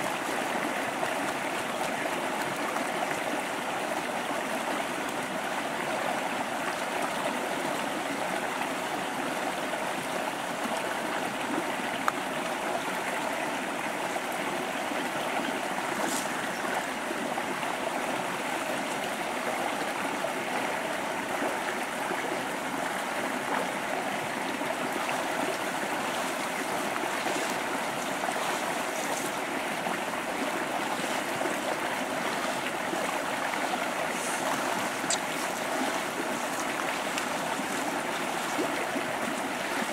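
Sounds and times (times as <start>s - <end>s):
river water flowing: 0.0s - 39.9s.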